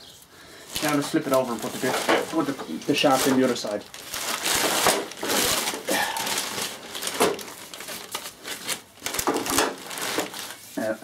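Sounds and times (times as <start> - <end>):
plastic sheeting crinkling: 0.6 - 11.0.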